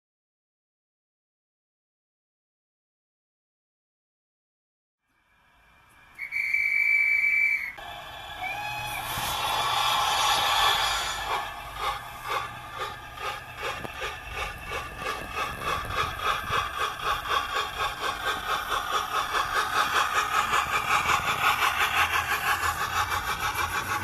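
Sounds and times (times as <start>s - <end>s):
model steam locomotive exhaust beats: 5.1s - 24.0s.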